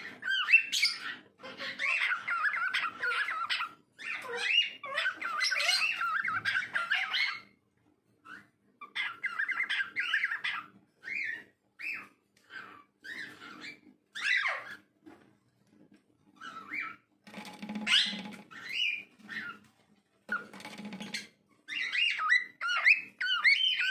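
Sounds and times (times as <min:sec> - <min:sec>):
cockatiel whistling and warbling: 0:00.0 - 0:07.5, 0:08.2 - 0:14.8, 0:21.7 - 0:23.9.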